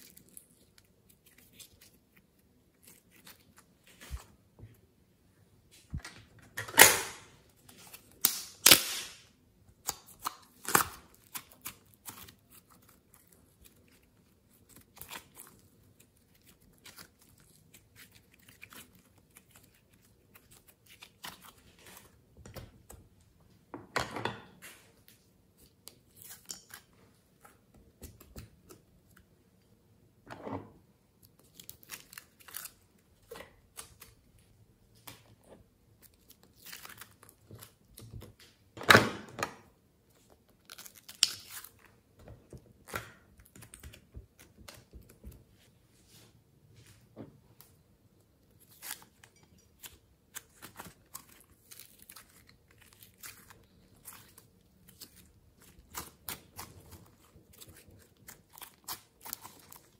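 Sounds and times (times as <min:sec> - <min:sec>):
sticky slime peeling and crackling: 0:09.8 - 0:22.2, 0:31.2 - 0:34.3, 0:35.9 - 0:38.4, 0:40.2 - 0:42.1, 0:49.8 - 0:59.9.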